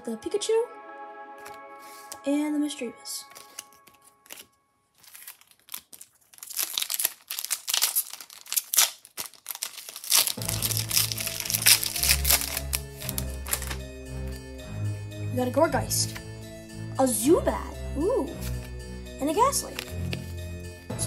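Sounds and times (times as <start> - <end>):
background music with steady bass: 0.0 - 4.0, 10.4 - 21.0
foil wrapper crinkling and tearing: 3.3 - 13.8.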